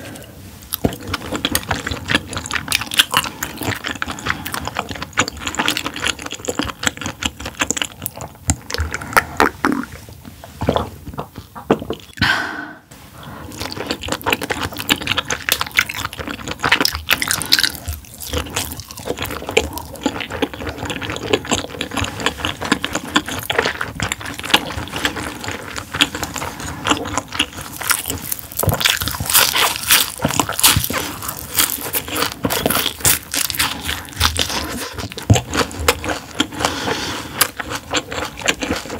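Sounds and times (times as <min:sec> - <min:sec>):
chewing and crunching: 0:00.0 - 0:12.2, 0:13.4 - 0:38.9
wet mouth noises: 0:00.0 - 0:12.8.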